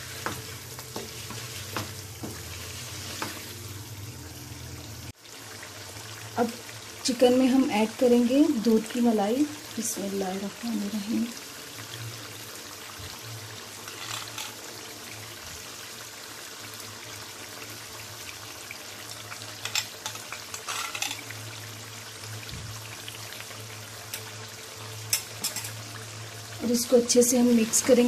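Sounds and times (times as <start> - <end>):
chicken sizzling in oil: 0.0 - 28.0
oil crackling and popping: 13.8 - 14.7, 18.2 - 21.5.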